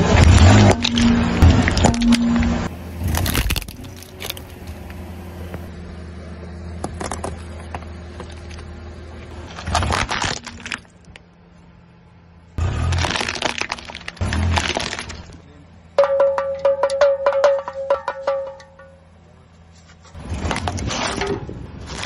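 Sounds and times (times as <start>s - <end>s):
crunching under a tyre: 0.0s - 5.7s, 6.8s - 11.6s, 12.6s - 15.5s, 19.7s - 22.0s
car engine idling: 0.4s - 9.6s.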